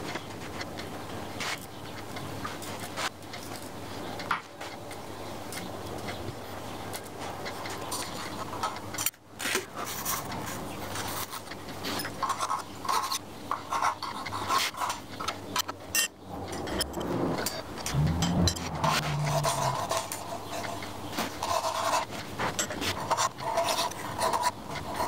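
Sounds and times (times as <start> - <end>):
steel scraping and rubbing: 16.0 - 20.8.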